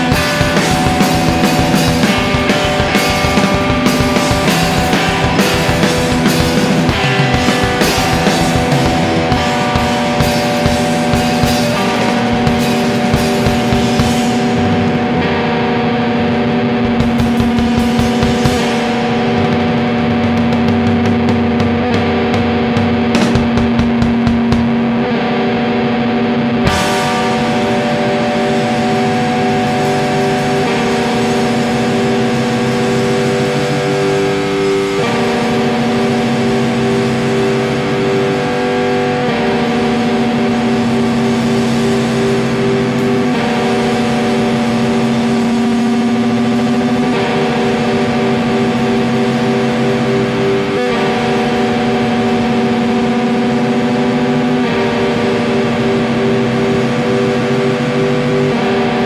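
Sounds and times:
distorted electric guitar: 0:00.0 - 0:59.0
drums: 0:00.0 - 0:59.0.

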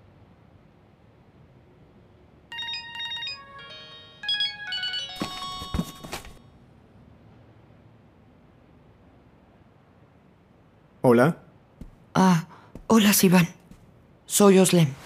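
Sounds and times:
phone ringtone electronic notes: 0:02.5 - 0:06.4.

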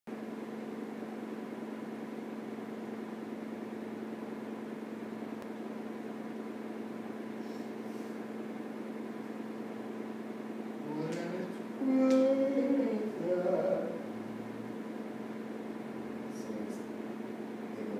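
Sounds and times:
steady hum: 0:00.1 - 0:17.9.

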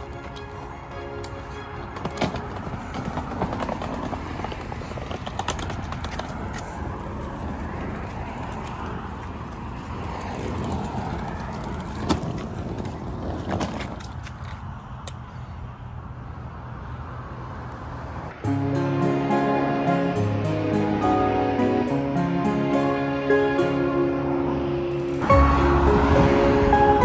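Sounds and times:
suitcase wheels rumbling on pavement: 0:00.0 - 0:14.6
road traffic: 0:00.0 - 0:27.0.

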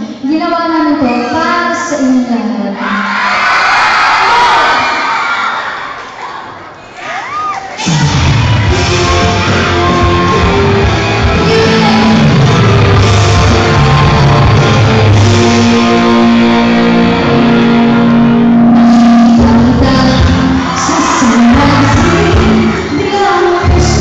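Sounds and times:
loud rock concert music: 0:07.8 - 0:24.0.

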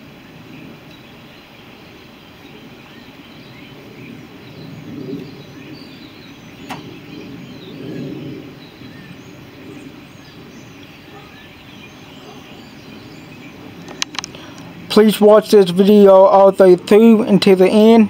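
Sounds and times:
faint bird chirps: 0:00.5 - 0:14.9.

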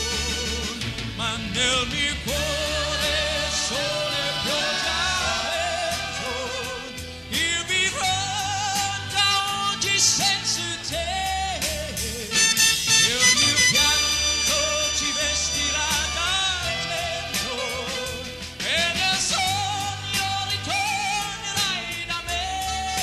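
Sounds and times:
man singing with vibrato: 0:00.0 - 0:23.0
backing chorus singing: 0:01.9 - 0:09.1, 0:13.0 - 0:19.3
orchestra playing: 0:12.3 - 0:18.2.

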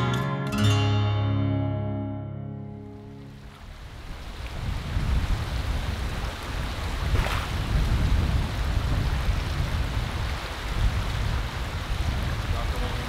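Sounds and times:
wind buffeting microphone: 0:03.4 - 0:13.0.

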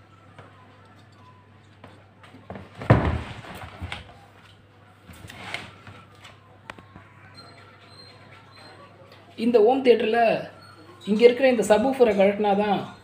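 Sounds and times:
heavy thud of wooden cabinet: 0:02.8 - 0:03.6
scraping rustle: 0:05.1 - 0:06.0.

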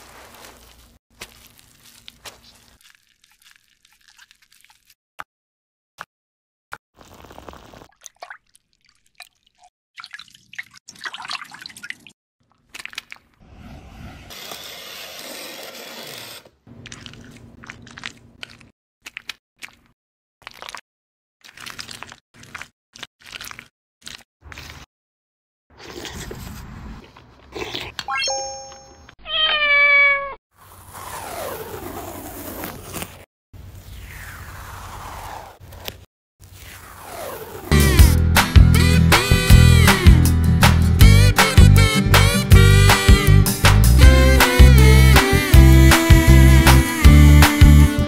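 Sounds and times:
water dripping from spoon: 0:07.9 - 0:12.1
splashing into bowl of water: 0:07.9 - 0:13.4
cat meowing: 0:29.2 - 0:30.4.

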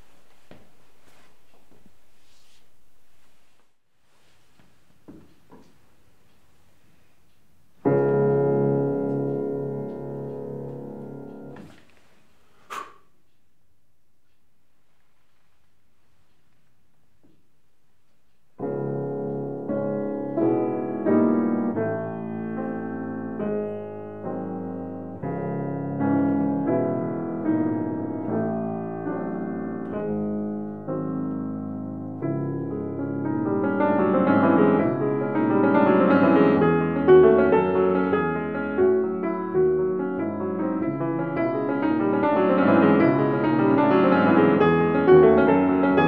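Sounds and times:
grand piano classical piece: 0:07.7 - 0:12.1, 0:18.5 - 0:46.0.

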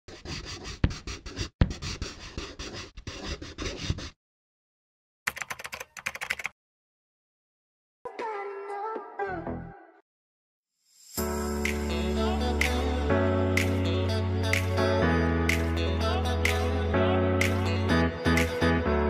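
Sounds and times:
rhythmic percussive music: 0:11.5 - 0:12.8.

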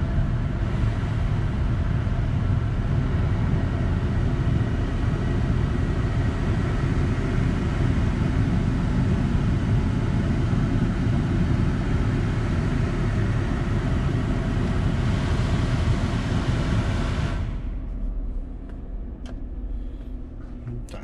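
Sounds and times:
truck cabin rumble: 0:17.5 - 0:21.0.

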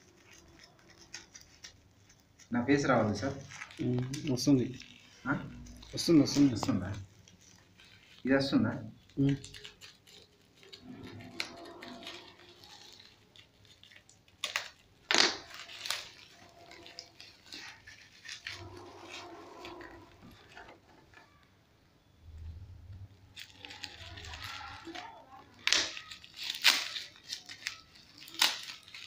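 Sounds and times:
scissors cutting plastic mailer: 0:00.0 - 0:20.6, 0:23.3 - 0:29.0
sharp plastic crackles: 0:00.0 - 0:21.5, 0:22.3 - 0:29.0
plastic rustling and crinkling: 0:00.0 - 0:29.0.

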